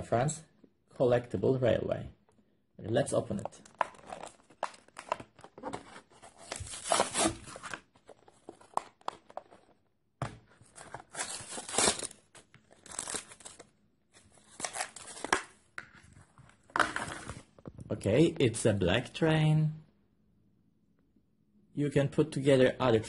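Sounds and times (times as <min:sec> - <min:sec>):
packaging tearing and crinkling: 0:03.7 - 0:07.8, 0:10.8 - 0:13.6, 0:14.4 - 0:15.5.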